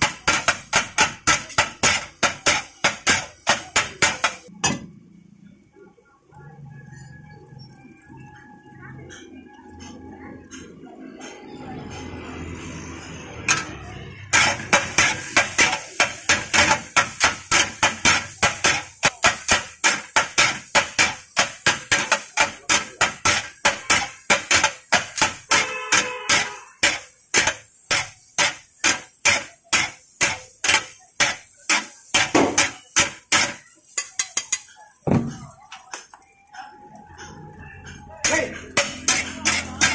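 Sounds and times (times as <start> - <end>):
metal spatulas clanging on griddle: 0.0 - 4.8, 13.5 - 35.9, 37.9 - 39.9.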